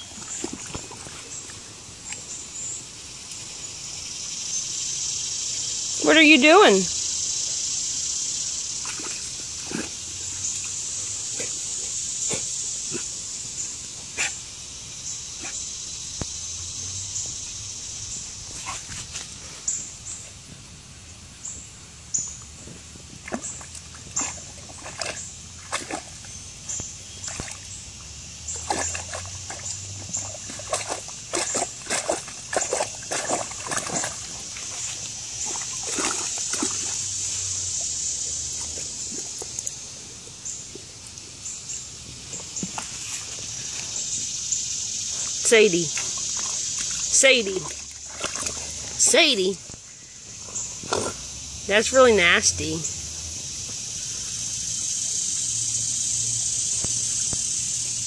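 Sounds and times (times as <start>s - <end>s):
steady high hiss: 34.3s - 47.6s, 48.8s - 58.0s.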